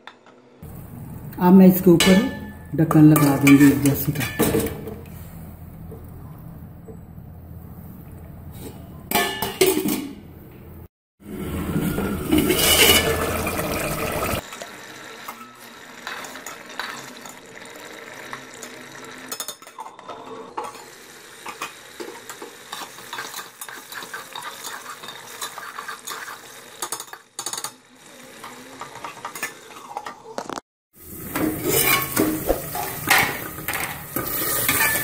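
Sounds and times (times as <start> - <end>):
metal pot clinking: 1.8 - 5.0, 9.1 - 10.2, 11.9 - 14.4, 31.3 - 35.0
gravy bubbling and sizzling: 11.2 - 35.0.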